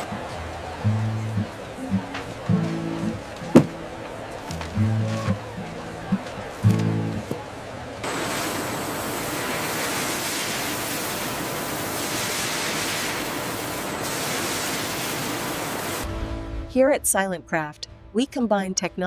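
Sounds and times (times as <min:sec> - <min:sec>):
water jets spraying: 0:08.0 - 0:16.0.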